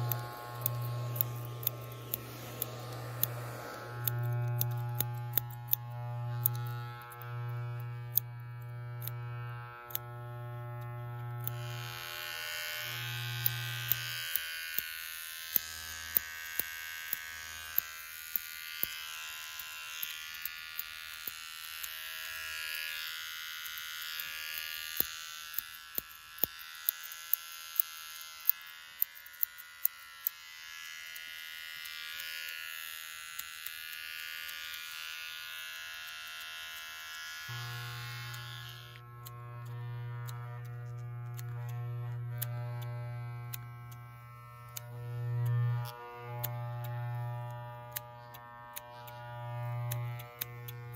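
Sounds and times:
low electric hum: 0.0s - 18.8s, 34.5s - 50.9s
sharp clicks: 0.0s - 22.0s, 37.5s - 50.9s
electric shaver buzzing: 0.0s - 50.9s.

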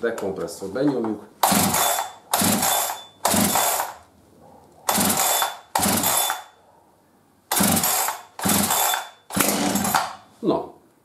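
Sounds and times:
chainsaw starter cord yanked: 1.4s - 4.0s, 4.9s - 6.5s, 7.5s - 10.2s.

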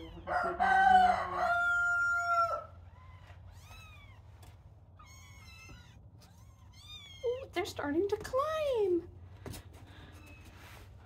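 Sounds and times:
kittens meowing: 0.0s - 0.3s, 1.8s - 7.5s
rooster crowing: 0.1s - 2.8s.

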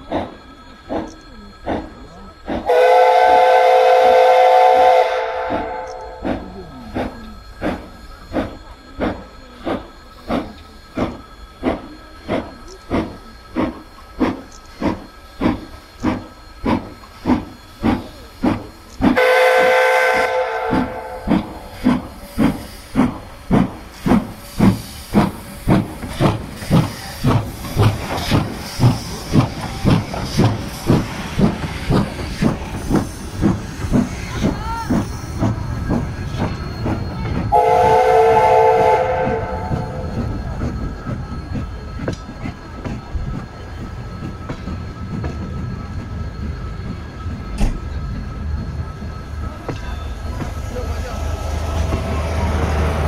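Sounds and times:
locomotive exhaust chuffs: 0.0s - 53.0s
steady steam hiss: 0.0s - 53.0s
steam locomotive whistle: 2.7s - 6.2s, 19.1s - 21.6s, 37.5s - 40.4s.

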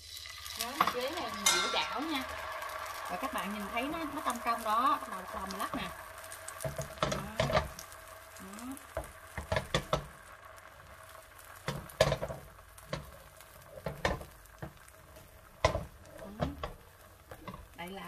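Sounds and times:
batter sizzling in a frying pan: 0.0s - 18.0s
pan knocking on stove grate: 0.8s - 2.4s, 6.6s - 7.8s, 8.9s - 10.2s, 11.6s - 14.9s, 15.5s - 17.8s.

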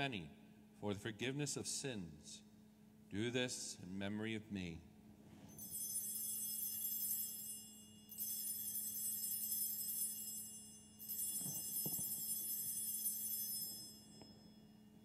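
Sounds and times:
altar bells jangling: 5.5s - 15.0s.

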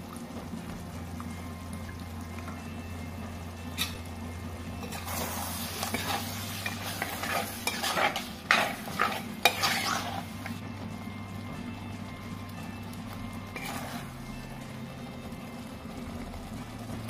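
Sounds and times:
faint sizzle: 0.0s - 17.0s
spoon scraping and knocking pot: 5.8s - 10.3s.

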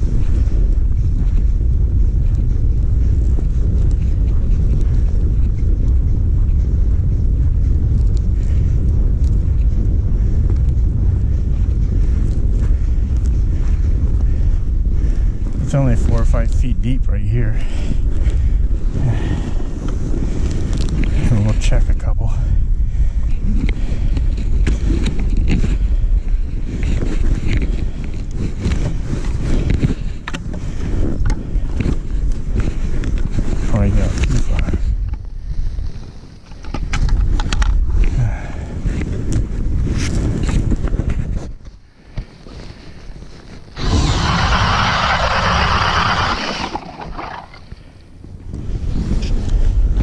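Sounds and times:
wind buffeting microphone: 0.0s - 50.0s
clicks and knocks of gear: 23.2s - 38.1s
cordless drill driving ice auger: 43.8s - 47.6s.

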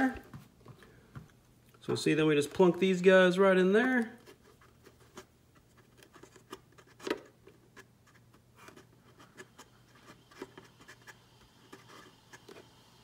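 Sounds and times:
faint steady hum: 0.0s - 13.0s
scratching and rubbing: 4.1s - 12.9s.

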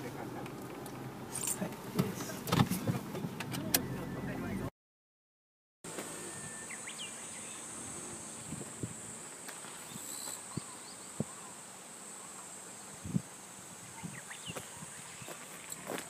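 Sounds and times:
insects droning: 5.9s - 16.0s
bird chirps: 6.2s - 8.4s, 9.8s - 11.6s, 13.8s - 16.0s.

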